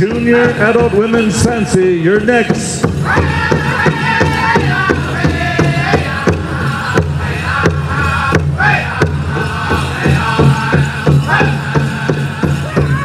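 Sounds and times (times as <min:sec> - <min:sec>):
big drum beat: 0:00.0 - 0:13.0
group singing: 0:03.0 - 0:13.0.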